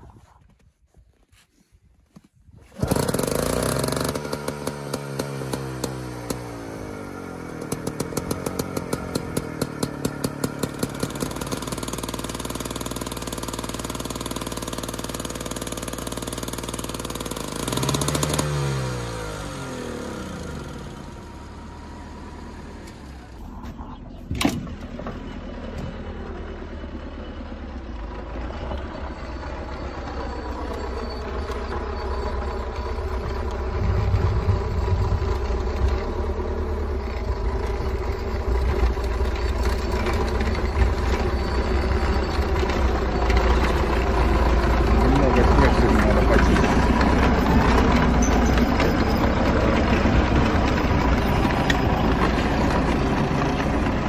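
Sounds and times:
diesel tractor engine starting: 0:02.6 - 0:54.0.

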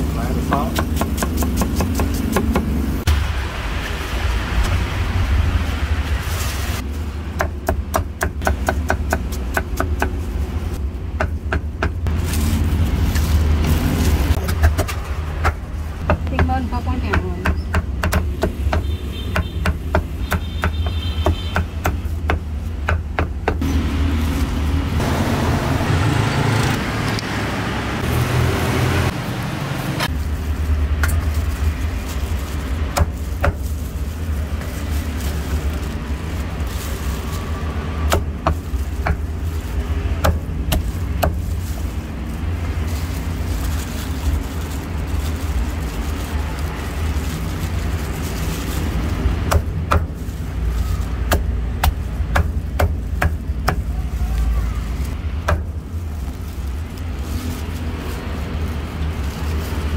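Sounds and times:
road traffic rumble: 0:00.0 - 0:59.9
rushing noise: 0:02.7 - 0:07.2.

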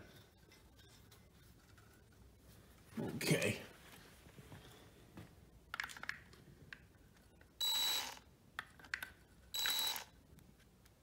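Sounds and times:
cordless drill motor whine: 0:07.6 - 0:08.2, 0:09.6 - 0:10.1.

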